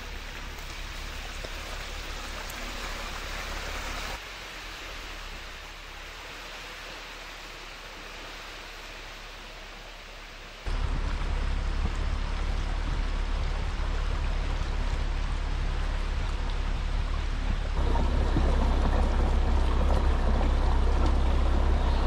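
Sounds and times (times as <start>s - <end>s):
water sloshing around wheels: 0.0s - 22.0s
low rumble: 10.6s - 22.0s.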